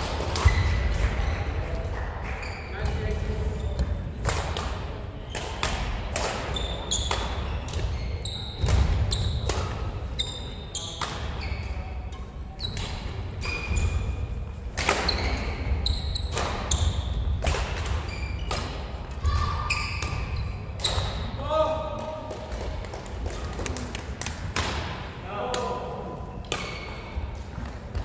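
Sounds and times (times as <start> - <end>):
rackets striking shuttlecock: 4.2 - 8.0, 10.8 - 11.4, 14.6 - 19.2, 24.2 - 25.8.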